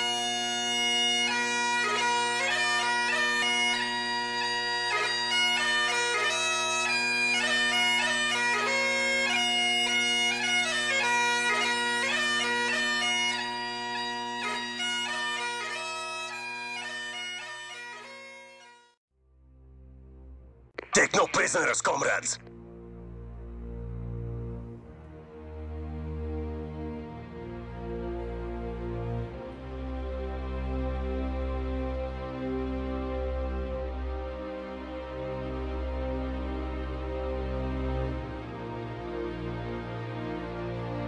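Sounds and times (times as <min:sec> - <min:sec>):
bagpipe playing a tune: 0:00.0 - 0:19.0, 0:23.0 - 0:41.0.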